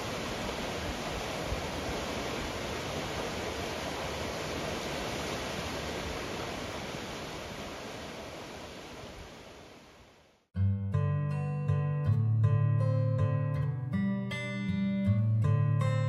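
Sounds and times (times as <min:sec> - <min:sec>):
mountain stream rushing: 0:00.0 - 0:10.4.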